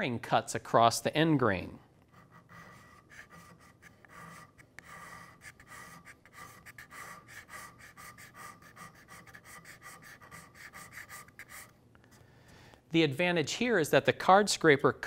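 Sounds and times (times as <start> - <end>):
card scraper scraping wood: 2.1 - 11.7.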